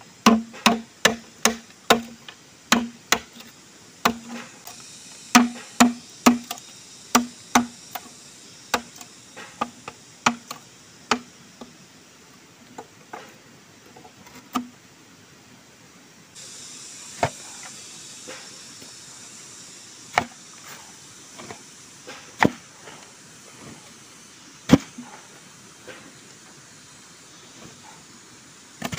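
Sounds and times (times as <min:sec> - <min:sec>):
steady hiss: 0:00.0 - 0:28.9
machete chopping bamboo: 0:00.2 - 0:04.5, 0:05.3 - 0:08.1, 0:08.7 - 0:11.3, 0:20.1 - 0:20.3, 0:22.1 - 0:22.6, 0:24.7 - 0:25.0.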